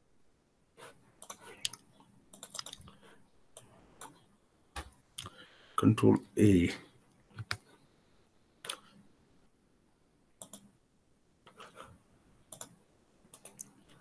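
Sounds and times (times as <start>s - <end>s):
mouse and keyboard clicks: 1.2s - 2.9s, 10.4s - 10.7s, 12.5s - 13.8s.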